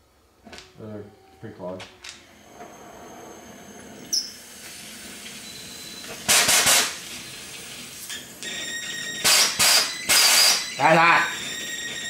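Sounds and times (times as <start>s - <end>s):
cutting torch gas bursts: 6.0s - 7.2s, 9.2s - 10.7s.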